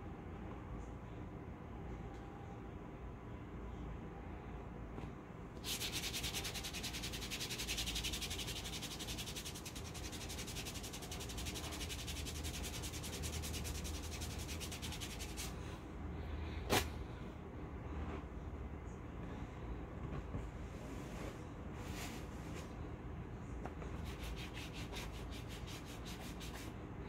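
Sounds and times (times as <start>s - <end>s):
scratchy rubbing of paper strip: 5.6s - 15.5s, 24.0s - 26.7s.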